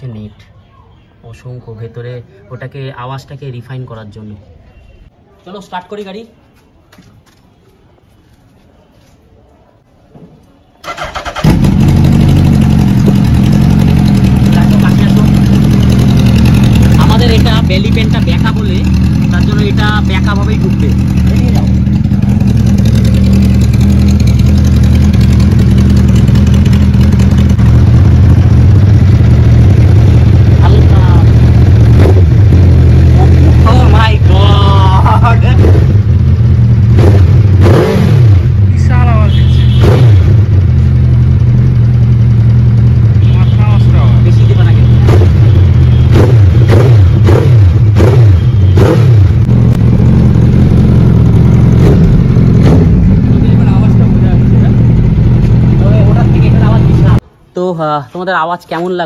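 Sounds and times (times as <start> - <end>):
motorcycle engine running: 10.9 - 57.2.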